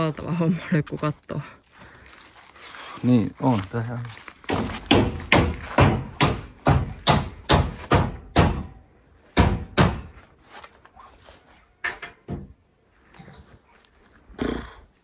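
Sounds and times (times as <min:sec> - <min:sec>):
footsteps on wooden floorboards: 0:03.5 - 0:06.1.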